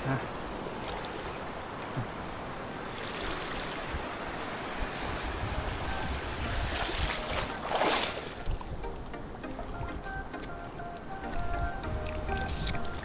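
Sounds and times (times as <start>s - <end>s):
waves washing on shore: 0.0s - 9.8s
wind rumbling on microphone: 0.3s - 10.3s, 11.0s - 13.0s.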